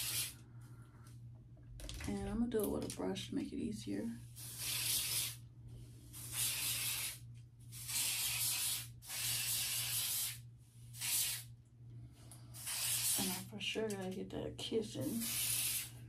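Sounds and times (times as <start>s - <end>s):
aerosol spray hissing: 0.0s - 0.4s, 4.4s - 5.4s, 6.1s - 11.5s, 12.6s - 13.4s, 15.0s - 16.0s.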